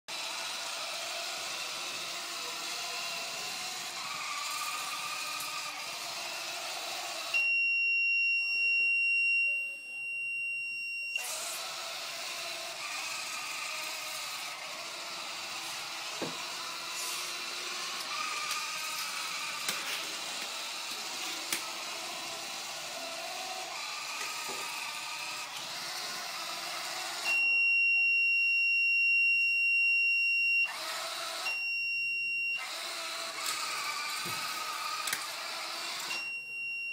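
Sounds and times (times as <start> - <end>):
robot drive motors running: 0.1 - 7.3, 11.2 - 27.2, 32.6 - 36.1
loud high beep: 7.3 - 11.4, 27.2 - 30.7, 36.1 - 36.9.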